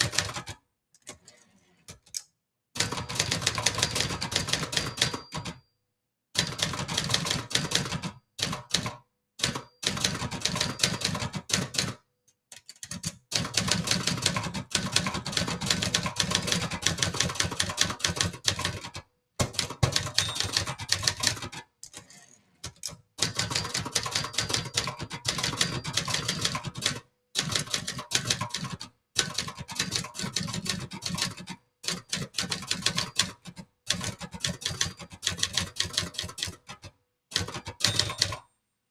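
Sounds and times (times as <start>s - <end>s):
manual typewriter typing: 0.0s - 1.3s, 2.8s - 5.6s, 6.4s - 38.5s.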